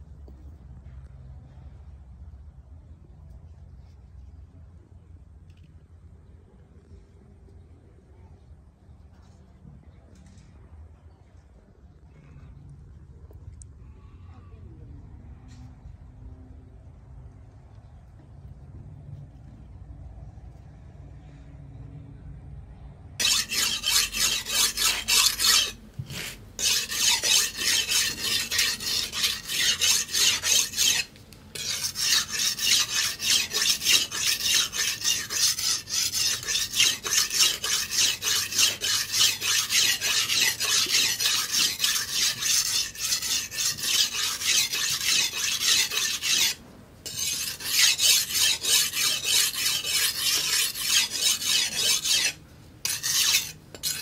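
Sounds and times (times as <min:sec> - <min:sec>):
blade scraping on sharpening stone: 0:23.2 - 0:54.0.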